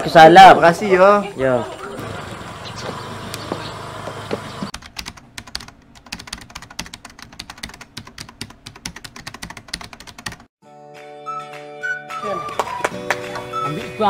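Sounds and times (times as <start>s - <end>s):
fast keyboard typing clicks: 4.7s - 10.5s.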